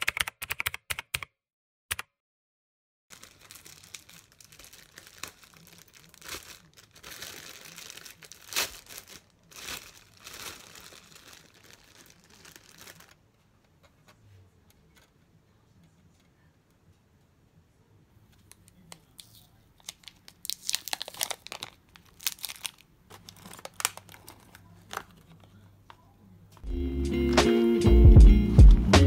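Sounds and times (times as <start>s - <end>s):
plastic bag crinkling: 3.1s - 13.2s, 19.8s - 25.4s.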